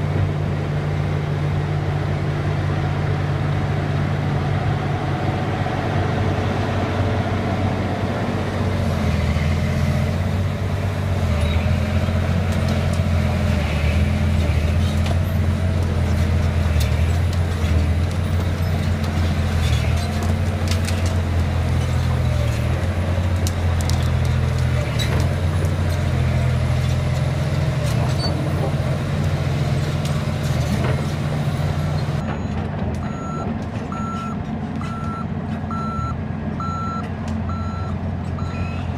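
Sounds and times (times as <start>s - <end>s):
excavator diesel engine running: 0.0s - 38.9s
truck reversing beeper: 31.8s - 38.9s.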